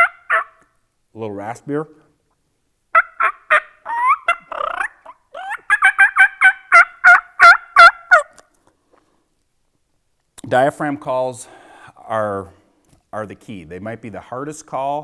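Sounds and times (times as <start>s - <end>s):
turkey call notes: 0.0s - 0.7s, 2.9s - 8.5s.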